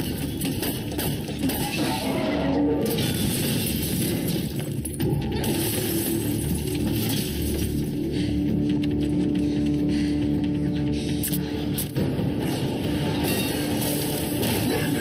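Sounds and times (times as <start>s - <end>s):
film battle sounds: 0.0s - 15.0s
glass window shattering: 2.9s - 4.8s.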